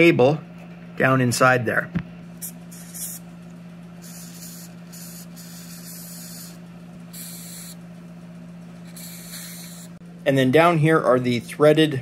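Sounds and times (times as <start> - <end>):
steady low hum: 0.0 - 12.0
aerosol spray hissing: 2.4 - 3.2, 4.0 - 7.8, 8.8 - 10.0.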